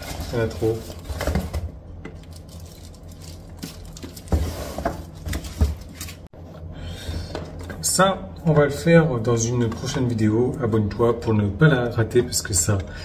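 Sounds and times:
plastic packaging rustling: 0.0s - 1.6s, 2.2s - 6.3s.

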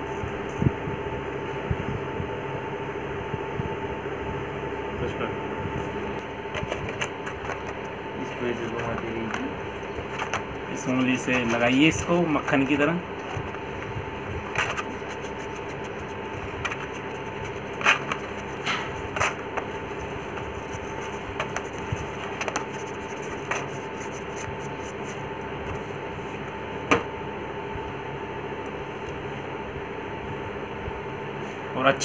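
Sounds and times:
background hum: 0.0s - 32.0s
hands tapping and rubbing objects: 6.5s - 25.8s.

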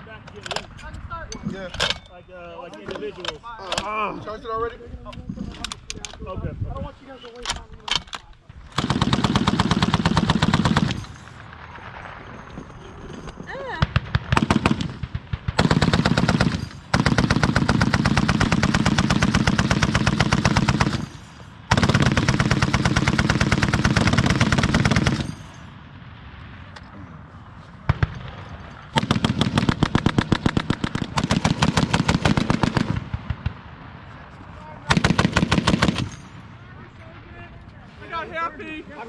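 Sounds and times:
machine gun automatic fire: 8.7s - 12.4s, 13.8s - 25.5s, 28.9s - 33.5s, 34.9s - 36.4s.

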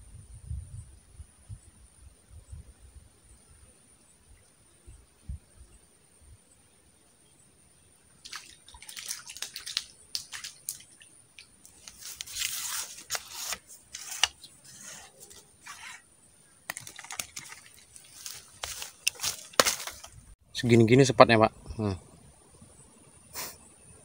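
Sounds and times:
small water splashes: 8.2s - 12.4s, 16.7s - 20.1s
wet crackles: 8.2s - 16.0s, 16.7s - 20.2s.

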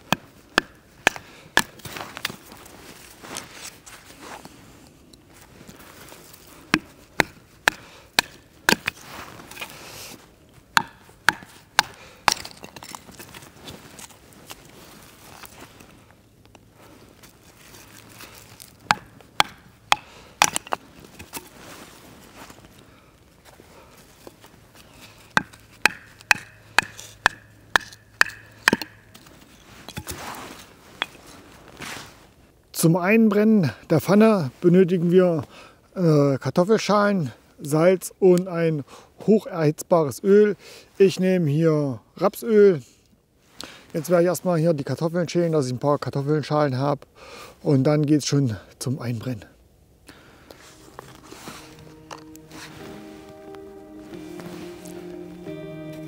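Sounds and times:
blade chopping firewood: 0.0s - 2.3s, 6.7s - 9.7s, 10.7s - 13.0s, 18.8s - 21.5s, 25.3s - 30.2s.

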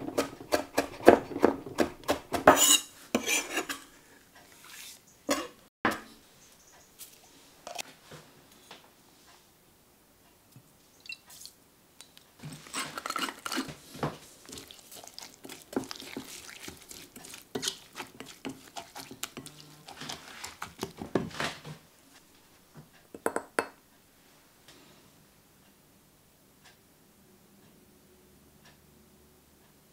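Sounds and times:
spatula stirring salsa in glass bowl: 12.4s - 21.4s.

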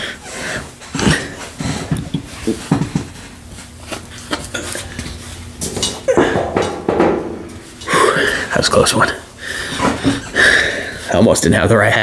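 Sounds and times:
cap handling knocks and rustling: 5.6s - 8.0s.

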